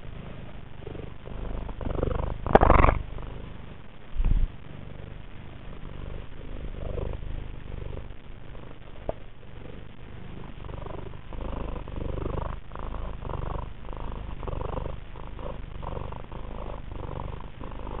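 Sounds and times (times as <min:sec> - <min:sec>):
cat purring: 0:00.0 - 0:18.0.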